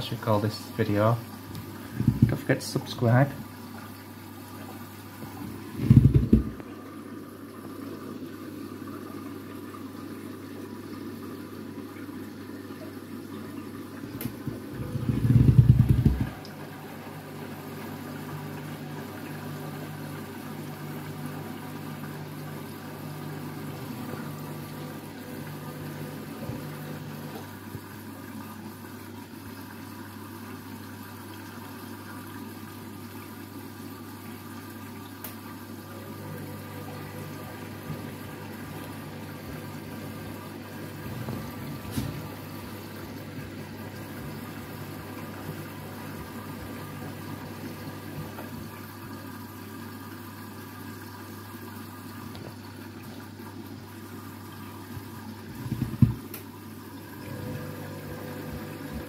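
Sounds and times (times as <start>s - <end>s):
washing machine motor hum: 0.0s - 59.0s
water sloshing in drum: 1.2s - 29.6s, 36.5s - 49.2s, 54.8s - 59.0s.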